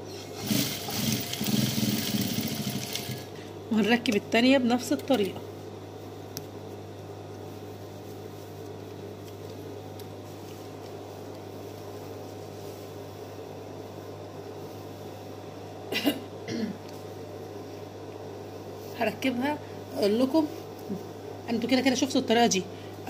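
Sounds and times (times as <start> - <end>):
sewing machine motor humming: 0.3 - 3.3
person coughing: 15.9 - 16.8.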